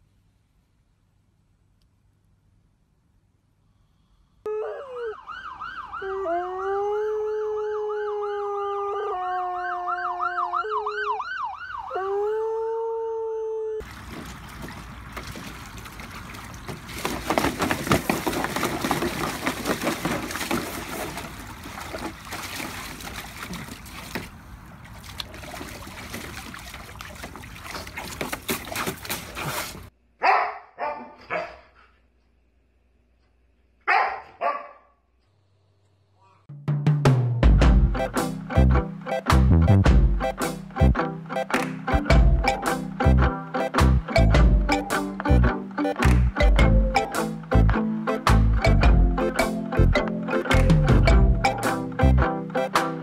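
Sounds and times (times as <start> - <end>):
dog howling: 4.5 - 5.3, 5.9 - 11.2, 11.8 - 13.8
siren sweeping up and down: 4.5 - 12.4
water splashing in paddling pool: 13.8 - 29.9
dog barking: 30.2 - 31.9, 33.8 - 35.0.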